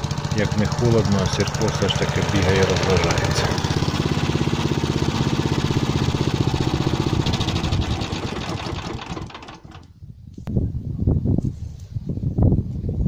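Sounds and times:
walk-behind tractor engine running: 0:00.0 - 0:09.9.

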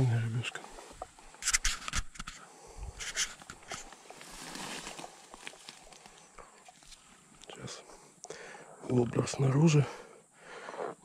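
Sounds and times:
grass and plants rustling: 0:00.0 - 0:08.1.

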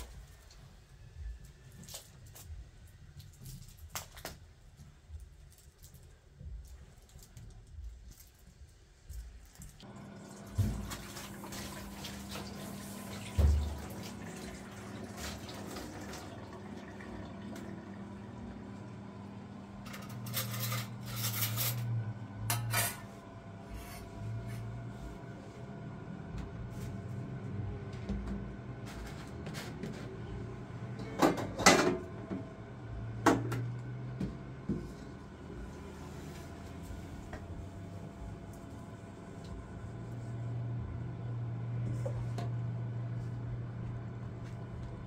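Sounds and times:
tap water running into sink: 0:10.0 - 0:18.1.

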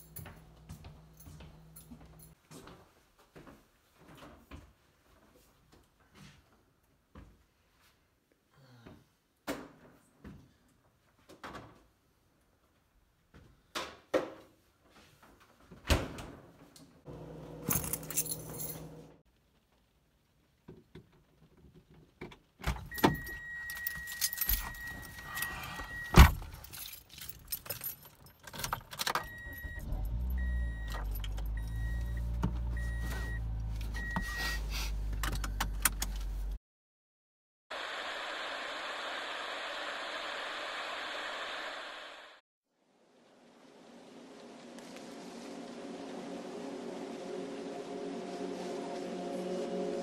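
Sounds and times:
car engine starting and idling: 0:17.1 - 0:19.2, 0:29.0 - 0:36.5
keys jangling: 0:17.7 - 0:19.0, 0:23.1 - 0:30.1
warning chime beeps: 0:22.9 - 0:26.2, 0:29.2 - 0:34.6.

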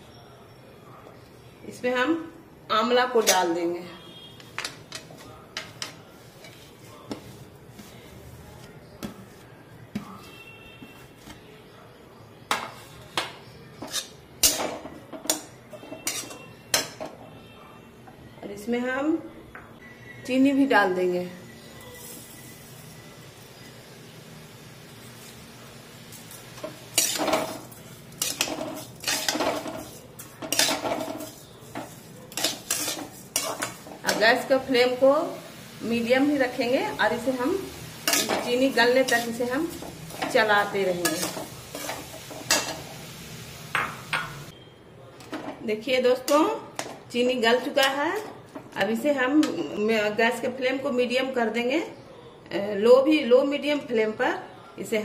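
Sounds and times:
spatula scraping metal pan: 0:15.8 - 0:16.5, 0:26.9 - 0:34.2, 0:38.0 - 0:42.8.

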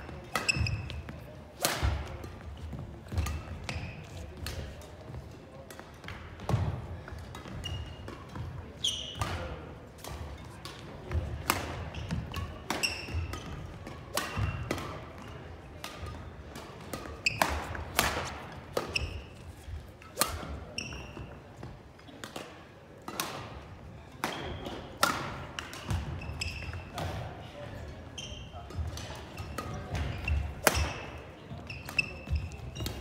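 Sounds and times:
sneakers squeaking: 0:00.0 - 0:06.6, 0:07.3 - 0:22.2, 0:24.0 - 0:33.0
rackets striking shuttlecocks: 0:09.0 - 0:15.2, 0:15.8 - 0:21.2, 0:28.7 - 0:33.0.

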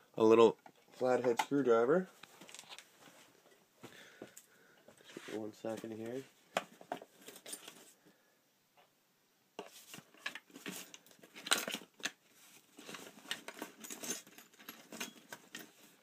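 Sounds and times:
small objects rustling and clinking: 0:02.2 - 0:02.9, 0:06.6 - 0:08.0, 0:09.6 - 0:16.0.

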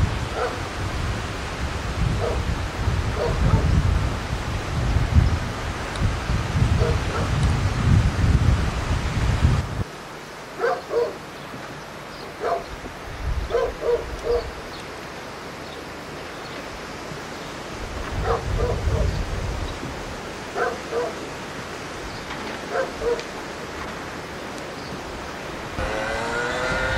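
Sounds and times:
wind gusts on microphone: 0:00.0 - 0:09.9, 0:12.4 - 0:14.8, 0:16.6 - 0:26.9
dog barking: 0:00.3 - 0:00.6, 0:02.2 - 0:02.4, 0:03.2 - 0:03.7, 0:06.8 - 0:07.3, 0:10.6 - 0:11.2, 0:12.4 - 0:12.7, 0:13.5 - 0:14.5, 0:18.2 - 0:19.1, 0:20.6 - 0:21.2, 0:22.7 - 0:23.3.

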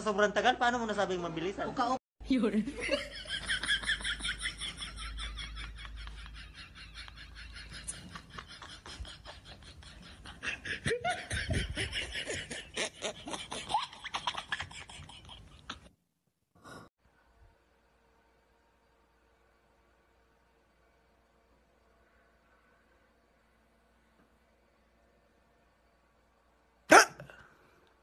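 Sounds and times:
rhythmic laughter: 0:02.8 - 0:15.9.

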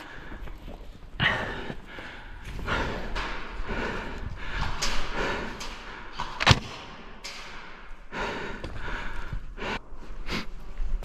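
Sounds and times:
sharp crack: 0:05.6 - 0:07.7.

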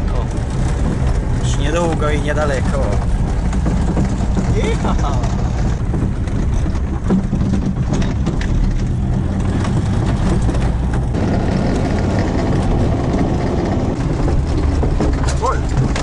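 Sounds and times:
body and suspension rattles: 0:00.0 - 0:16.0
vehicle engine and road rumble: 0:00.0 - 0:16.0.

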